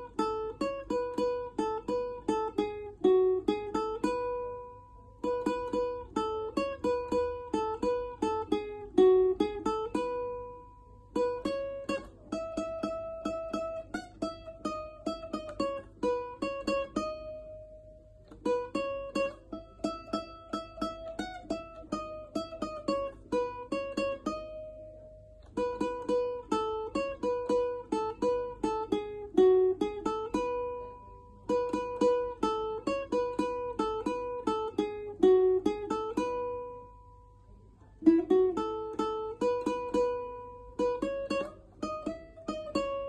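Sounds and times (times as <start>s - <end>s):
ukulele picking slow melody: 0.0s - 43.0s.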